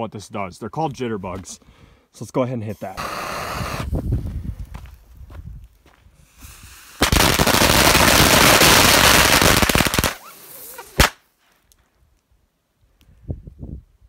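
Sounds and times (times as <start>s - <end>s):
firework hiss: 2.7s - 4.1s, 6.2s - 11.2s
rapid firecracker pops: 7.0s - 10.3s, 10.9s - 11.2s.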